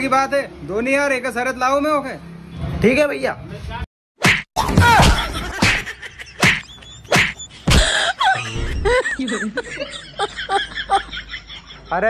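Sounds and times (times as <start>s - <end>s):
slaps on a man's head and back: 4.2s - 7.8s.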